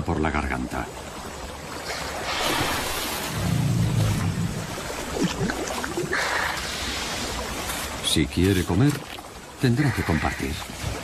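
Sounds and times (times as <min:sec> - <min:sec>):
water splashing and churning: 0:00.0 - 0:11.0
low rumble: 0:03.3 - 0:05.6.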